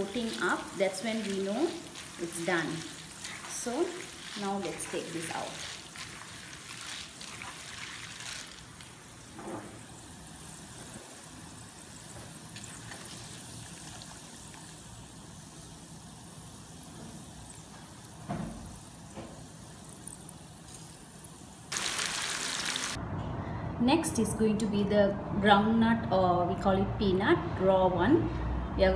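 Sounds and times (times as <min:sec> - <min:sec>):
oil hissing in a wok: 0:21.3 - 0:23.0.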